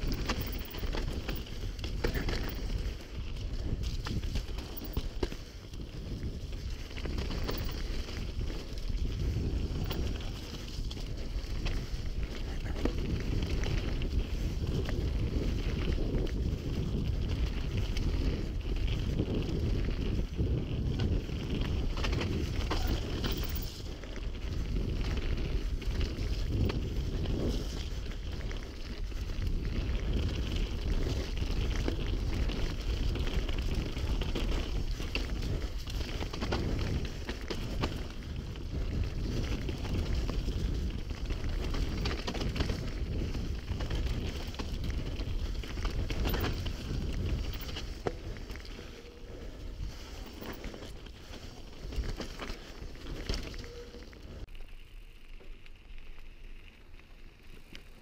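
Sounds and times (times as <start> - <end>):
bike knocking and rattling: 0.0 - 54.1
wind buffeting microphone: 0.0 - 54.5
tyres rumbling on dirt: 11.8 - 28.0.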